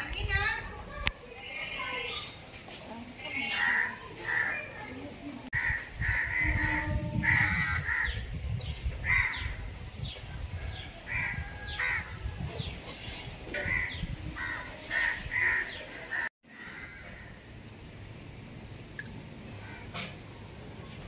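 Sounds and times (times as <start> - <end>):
crows cawing: 3.6 - 4.7, 5.5 - 8.2, 13.6 - 17.4.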